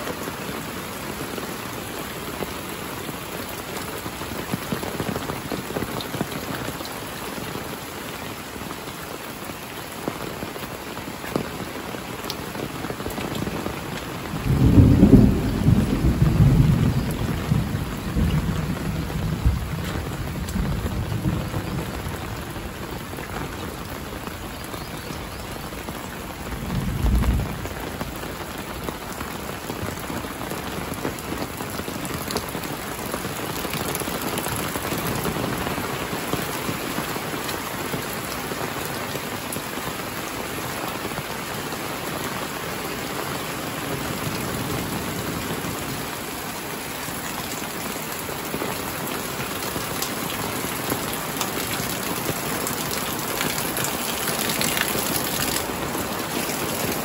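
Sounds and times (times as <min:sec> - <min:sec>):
heavy rain falling: 0:00.0 - 0:57.0
thunder rumbling: 0:14.1 - 0:23.8, 0:25.8 - 0:30.0.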